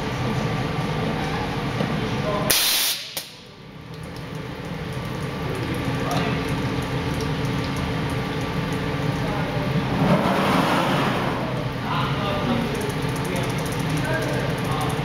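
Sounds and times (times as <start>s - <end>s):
compressed air hiss: 2.5s - 3.3s.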